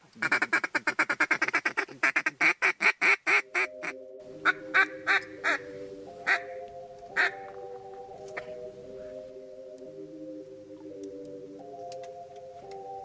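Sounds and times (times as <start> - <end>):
duck call rapid chuckle: 0.2 - 3.7
duck call quacks: 0.2 - 5.6, 6.2 - 6.5
low background music: 3.4 - 13.0.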